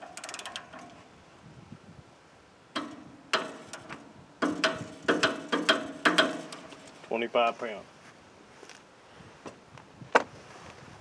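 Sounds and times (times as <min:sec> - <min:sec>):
metal clicks and clacks: 0:00.0 - 0:01.0, 0:02.8 - 0:07.0.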